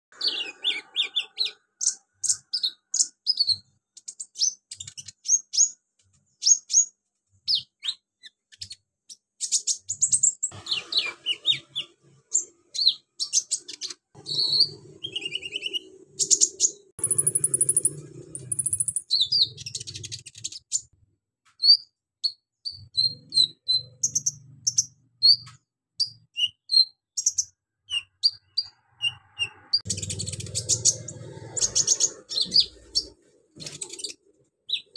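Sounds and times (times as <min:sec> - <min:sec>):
bird singing high chirps: 0:00.1 - 0:21.0, 0:21.6 - 0:34.9
buzzy rapid bird trill: 0:09.4 - 0:20.9, 0:22.2 - 0:34.9.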